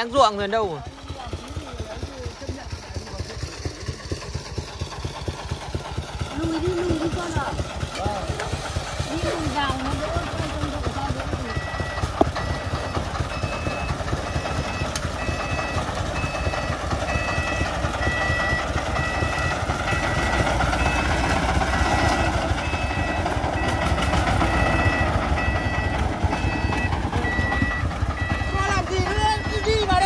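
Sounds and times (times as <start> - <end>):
diesel truck engine under load: 0.0 - 30.0
two-tone reversing beeper: 9.2 - 30.0.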